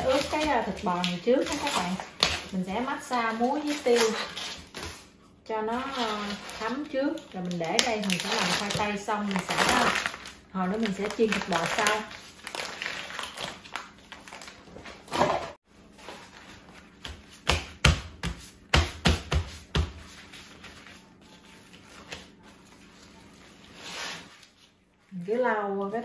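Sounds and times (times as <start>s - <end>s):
plastic film crinkling: 0.0s - 4.6s, 5.8s - 15.1s.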